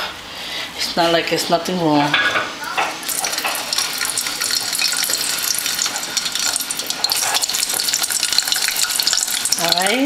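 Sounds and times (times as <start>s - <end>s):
deep-frying sizzle with crackling: 2.1s - 10.0s.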